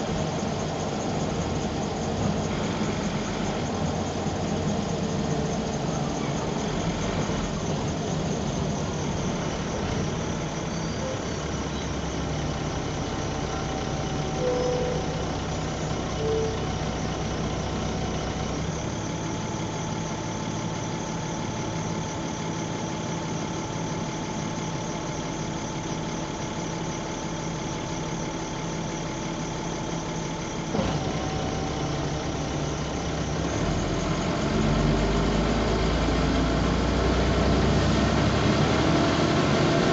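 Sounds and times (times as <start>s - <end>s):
bus diesel engine idling: 0.0s - 39.9s.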